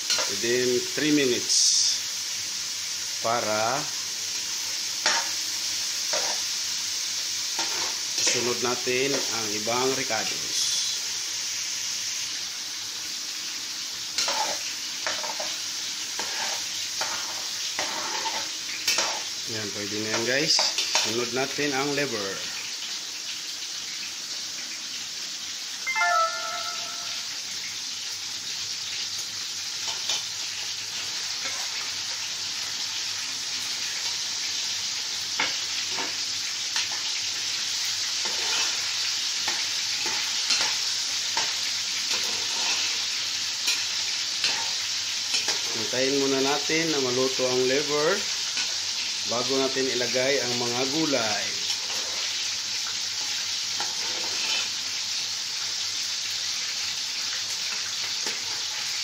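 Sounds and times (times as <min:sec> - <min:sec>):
meat sizzling in a pot: 0:00.0 - 0:59.0
metal spoon scraping a pot: 0:16.2 - 0:19.2.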